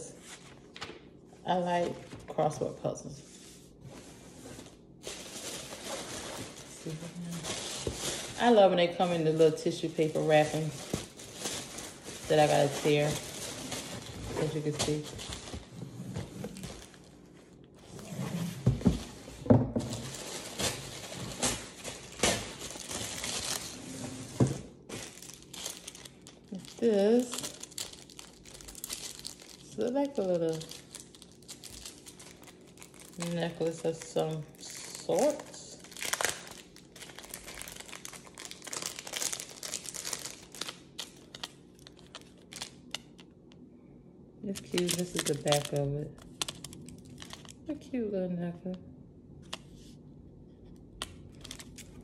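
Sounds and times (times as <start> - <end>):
tissue paper crinkling and tearing: 4.6 - 8.6, 10.0 - 15.8, 19.9 - 24.3, 24.9 - 43.2, 44.6 - 47.6, 51.3 - 52.0.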